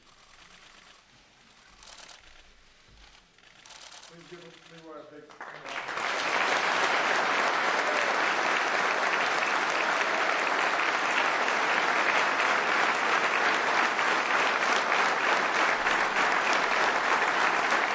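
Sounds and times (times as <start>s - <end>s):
audience applauding: 5.3s - 17.9s.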